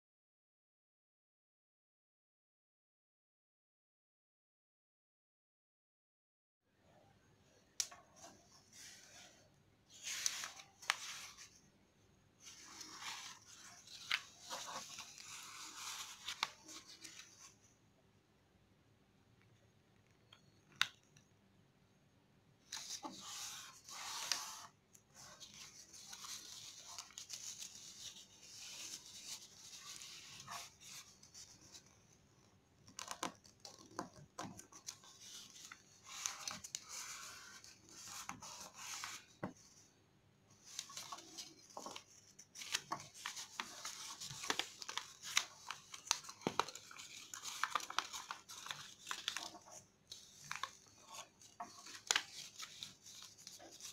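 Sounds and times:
click: 0:07.8 - 0:08.0, 0:19.4 - 0:21.3
paper rustling and crinkling: 0:07.9 - 0:11.7, 0:12.4 - 0:17.6, 0:22.7 - 0:39.9, 0:40.5 - 0:53.9.

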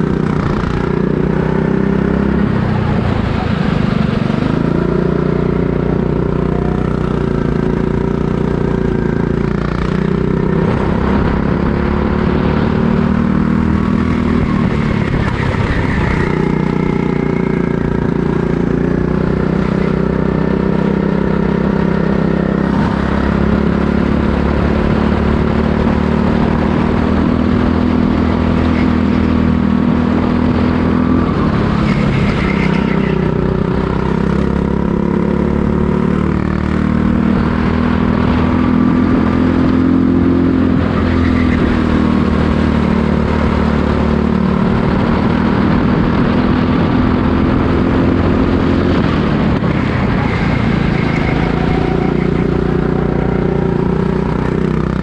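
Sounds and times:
go-kart engine revving: 0:00.0 - 0:55.0.

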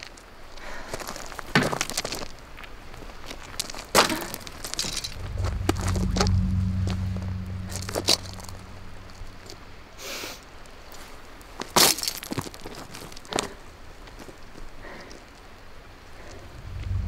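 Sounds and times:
footsteps crunching on stones: 0:00.9 - 0:05.1, 0:11.6 - 0:14.5
low hum: 0:04.3 - 0:10.5, 0:16.2 - 0:17.0.

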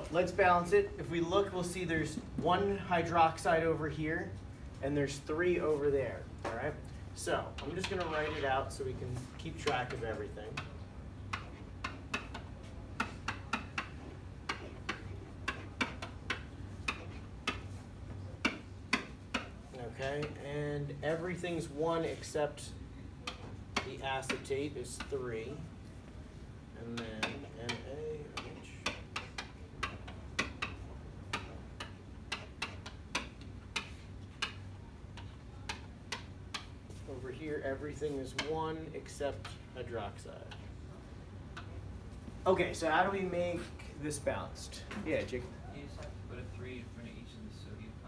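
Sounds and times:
steady low hum: 0:00.0 - 0:48.0
marker tapping on whiteboard: 0:09.2 - 0:20.4, 0:26.9 - 0:37.0.

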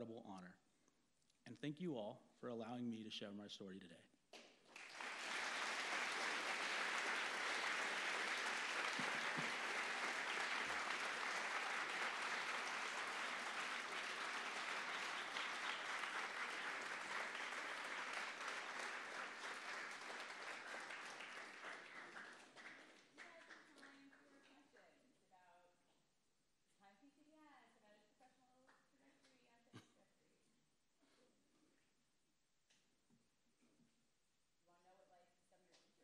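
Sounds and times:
audience applauding: 0:04.7 - 0:24.3.

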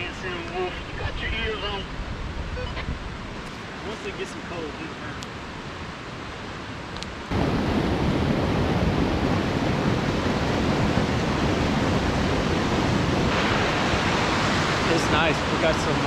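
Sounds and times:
water rushing over rocks: 0:07.3 - 0:16.0.

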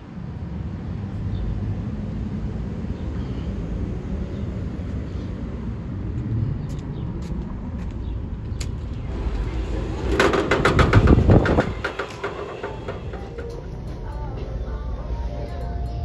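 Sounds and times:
low outdoor rumble: 0:00.0 - 0:16.0
glass door clattering open: 0:09.2 - 0:13.7.

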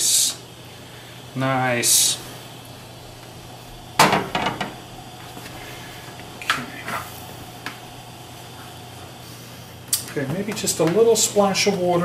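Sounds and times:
steady low hum: 0:00.0 - 0:12.0
metal pan knocking on stove grate: 0:04.0 - 0:04.8.

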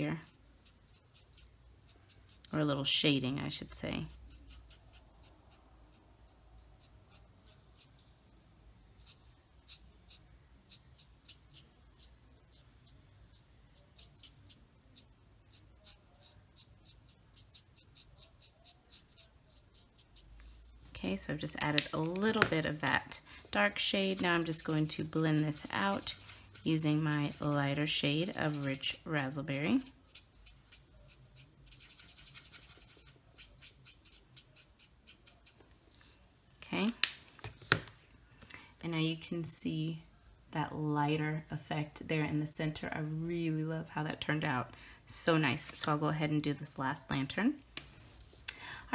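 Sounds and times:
marker scratching on cardstock: 0:00.0 - 0:02.6, 0:03.5 - 0:08.3, 0:08.9 - 0:20.8, 0:21.5 - 0:36.2.

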